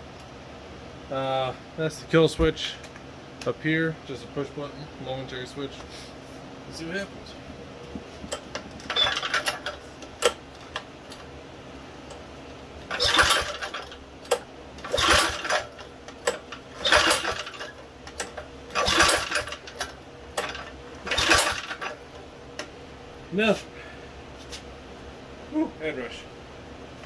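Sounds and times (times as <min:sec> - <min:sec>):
engine cranking on pull starts: 0:08.8 - 0:10.4, 0:12.9 - 0:22.0.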